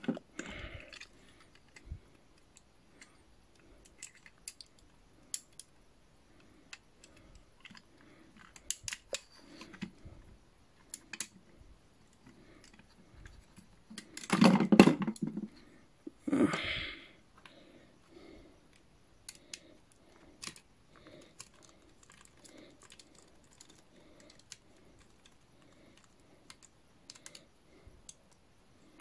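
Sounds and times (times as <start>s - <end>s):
plastic toy parts clicking: 3.8s - 5.7s, 6.7s - 10.0s, 10.8s - 11.4s, 18.7s - 28.4s.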